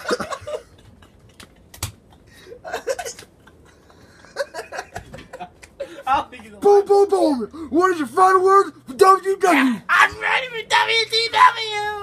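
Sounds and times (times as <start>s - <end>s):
men laughing softly: 0.0s - 6.6s.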